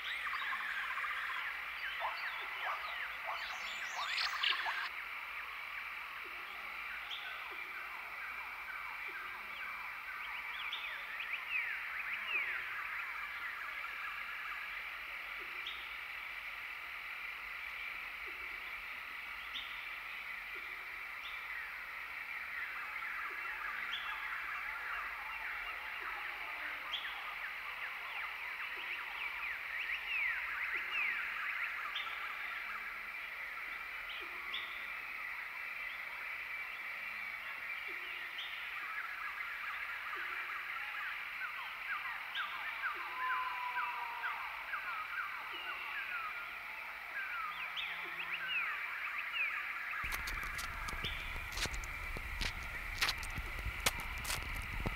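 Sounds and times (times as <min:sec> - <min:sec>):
birds and insects chirping: 0:00.0 - 0:54.9
birds chirping and whistling: 0:50.1 - 0:54.9.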